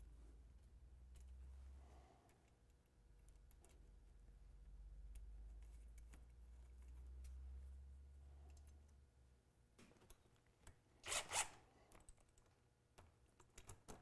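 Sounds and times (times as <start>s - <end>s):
cordless drill driving screw: 11.0s - 11.6s.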